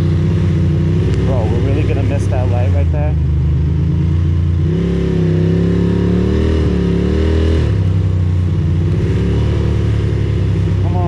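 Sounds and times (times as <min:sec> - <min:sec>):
motorcycle engine accelerating: 0:00.0 - 0:11.0
wind: 0:00.0 - 0:11.0.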